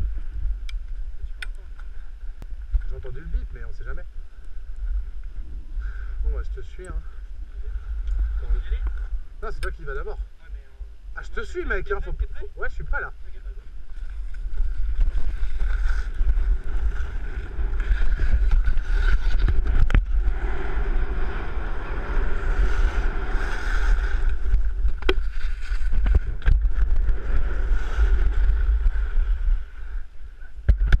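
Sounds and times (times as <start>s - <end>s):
wind buffeting microphone: 0.0s - 31.0s
skis scraping over snow: 13.9s - 30.2s.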